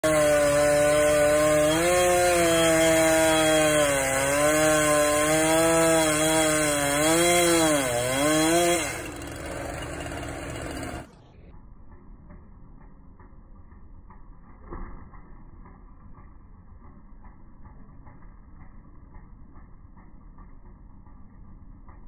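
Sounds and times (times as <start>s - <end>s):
chainsaw cutting wood: 0.0s - 11.3s.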